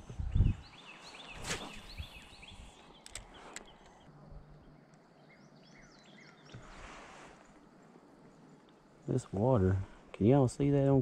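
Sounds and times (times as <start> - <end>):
faint bird chirps: 0.1 - 10.0
light clicks: 3.0 - 4.1.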